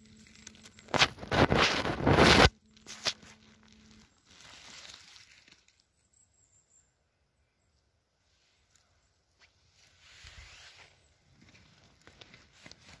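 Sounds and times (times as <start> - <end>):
moss rustling and tearing: 0.2 - 5.8, 9.8 - 11.0.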